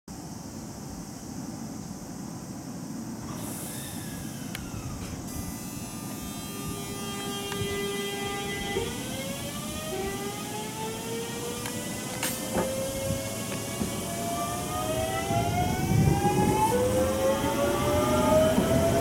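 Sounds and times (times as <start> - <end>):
electric train inverter whine: 0.1 - 19.0
air brake hiss: 3.2 - 9.1.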